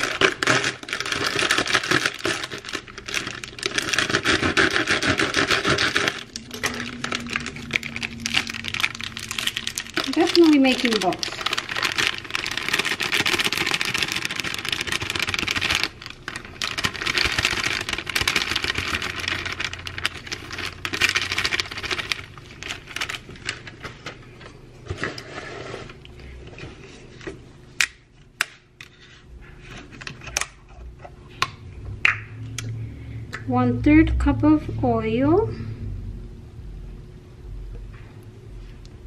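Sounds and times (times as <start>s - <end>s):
plastic bag crinkling: 0.0s - 26.3s.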